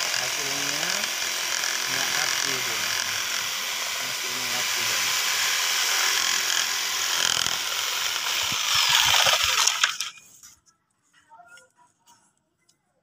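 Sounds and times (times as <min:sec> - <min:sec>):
electric jigsaw cutting wood: 0:00.0 - 0:10.2.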